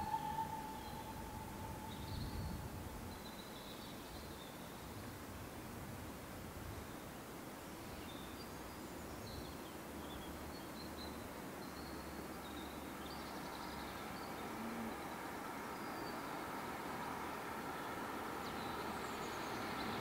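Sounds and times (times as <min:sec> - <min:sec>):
faint background hiss: 0:00.0 - 0:20.0
small birds chirping: 0:07.7 - 0:20.0.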